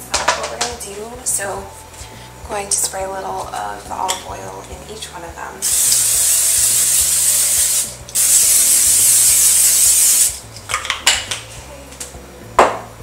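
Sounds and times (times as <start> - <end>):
cooking spray hissing: 5.6 - 10.5.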